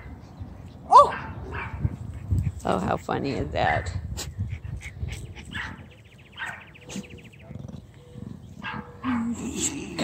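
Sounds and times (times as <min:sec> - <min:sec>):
dog grunting and snorting: 0:09.0 - 0:10.0.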